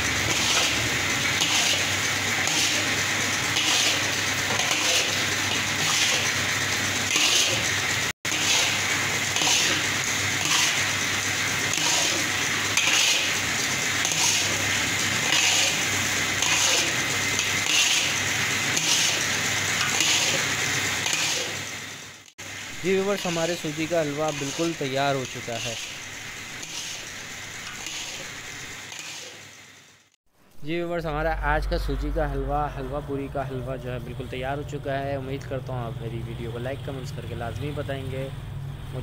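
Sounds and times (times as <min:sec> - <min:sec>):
metal spatula scraping a pan: 0:00.0 - 0:06.4, 0:07.0 - 0:21.6, 0:23.2 - 0:29.5
low steady hum: 0:30.5 - 0:37.7.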